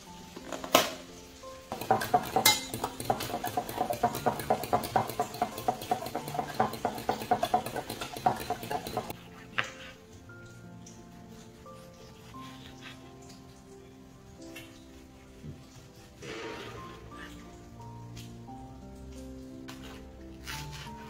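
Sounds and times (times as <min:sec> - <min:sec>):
soft background music: 0:00.0 - 0:21.0
fork clinking against glass: 0:01.7 - 0:09.2.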